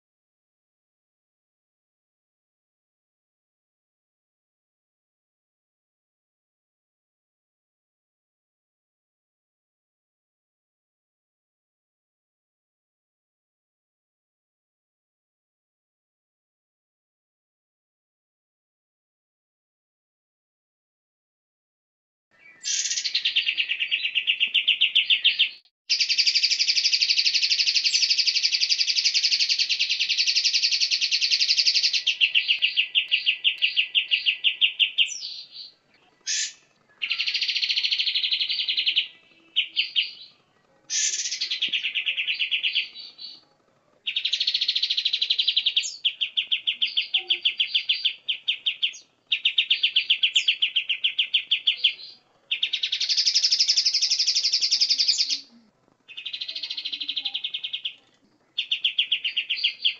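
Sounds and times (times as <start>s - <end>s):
bird song rattling trills: 22.4s - 43.4s, 44.0s - 55.4s, 56.1s - 59.9s.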